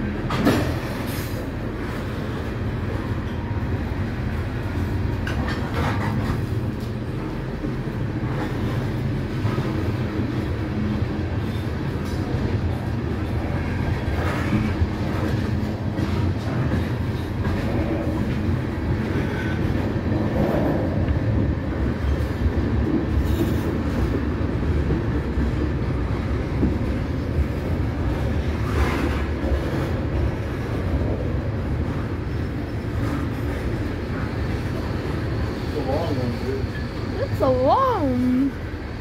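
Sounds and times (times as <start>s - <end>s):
train wheels rumbling on rail: 0.0s - 39.0s.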